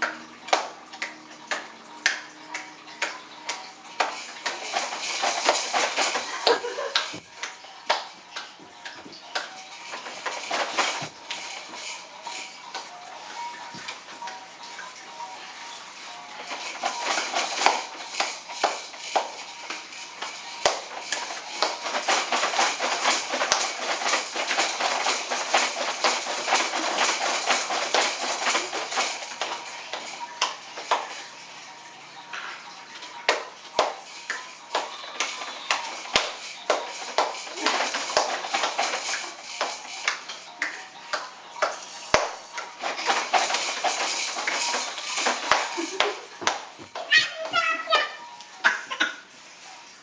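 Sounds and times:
plastic toys rattling and clattering: 0.0s - 50.0s.

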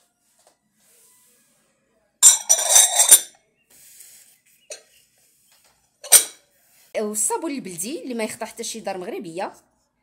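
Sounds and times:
glass lids clinking: 2.2s - 3.3s, 6.0s - 6.4s.

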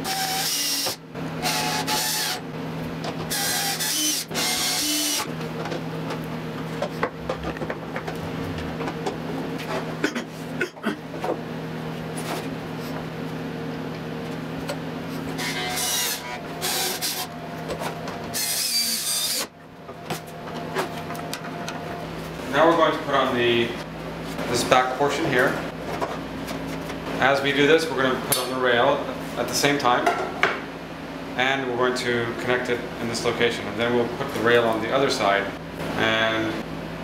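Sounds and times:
steady low hum: 0.0s - 37.0s
cordless drill driving screws: 3.3s - 5.3s.

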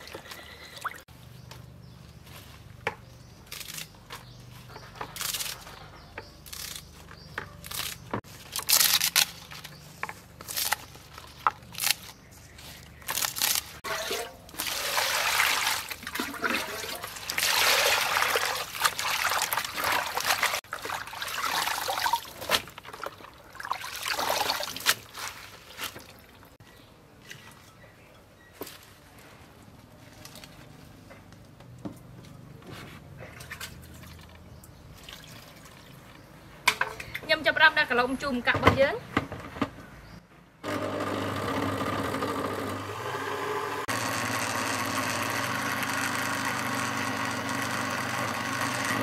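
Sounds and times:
water splashing and dripping: 14.0s - 26.6s, 33.4s - 36.2s.

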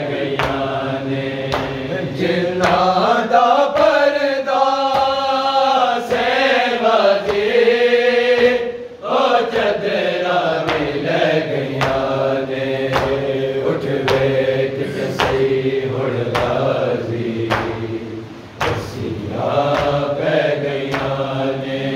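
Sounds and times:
men chanting a lament: 0.0s - 21.9s
chest-beating slaps: 0.1s - 0.8s, 1.4s - 3.1s, 10.6s - 11.0s, 12.9s - 13.3s, 13.9s - 16.6s, 17.5s - 20.1s, 20.8s - 21.2s.

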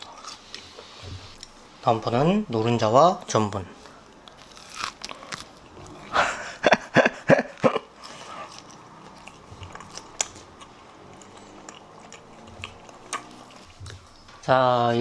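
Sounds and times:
crunchy biting and chewing: 4.2s - 6.5s, 7.7s - 14.2s.

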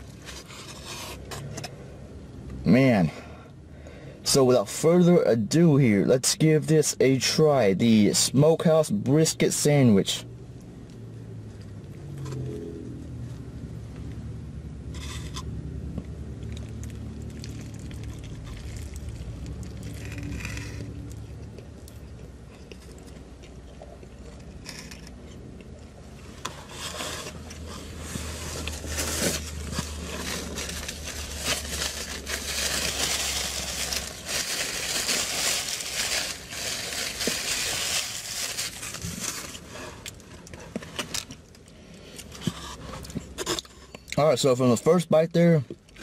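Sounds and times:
low steady hum: 0.0s - 46.0s
paper napkin rustling: 26.6s - 39.7s.

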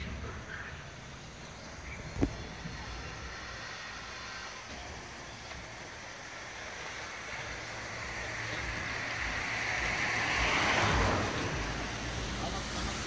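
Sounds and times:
road vehicle passing by: 0.0s - 13.0s.

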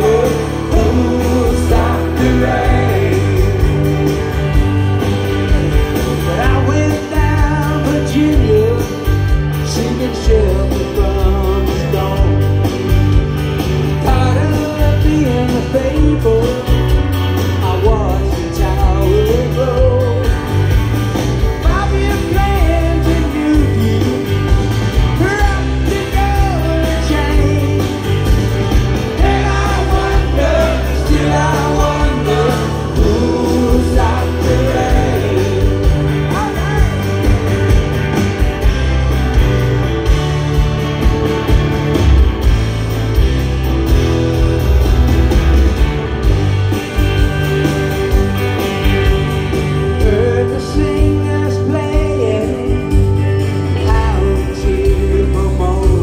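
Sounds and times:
man singing lead vocal: 0.0s - 4.1s, 6.1s - 12.6s, 14.0s - 20.5s, 21.6s - 24.5s, 25.2s - 28.2s, 29.1s - 37.1s, 49.9s - 56.0s
live rock band: 0.0s - 56.0s.

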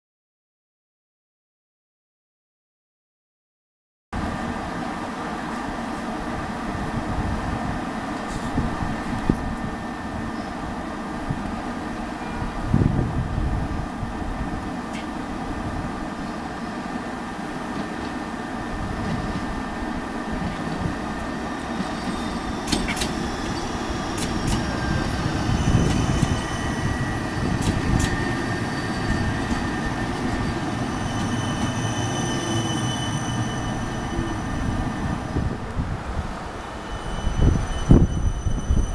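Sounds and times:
tram rumbling past on rails: 4.2s - 38.9s
high-pitched squealing tones: 21.7s - 35.3s, 36.8s - 38.9s.

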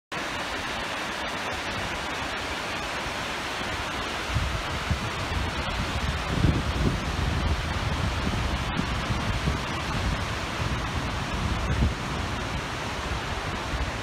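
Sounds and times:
river rapids rushing: 0.1s - 14.0s
wind buffeting microphone: 4.2s - 14.0s.

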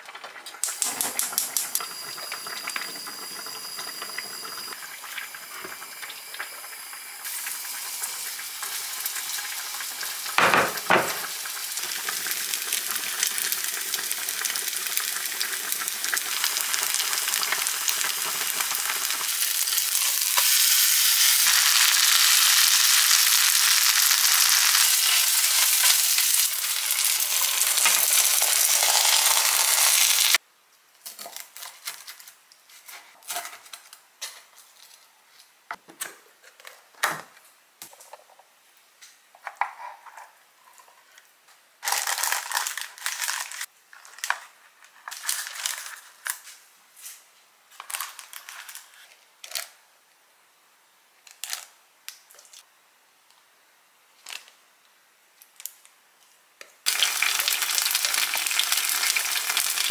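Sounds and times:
food sizzling in hot oil: 0.5s - 30.4s, 56.9s - 59.9s
utensil knock on pan: 10.4s - 11.2s.

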